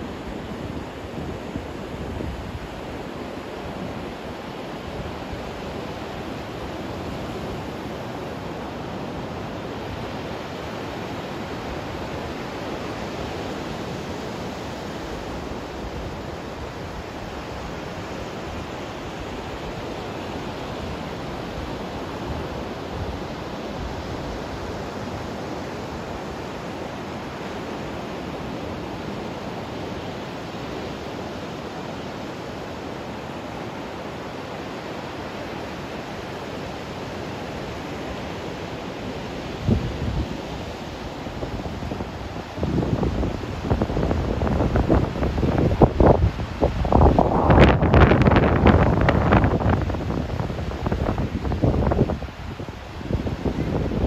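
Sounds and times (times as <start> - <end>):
ocean surf breaking on beach: 0.0 - 54.0.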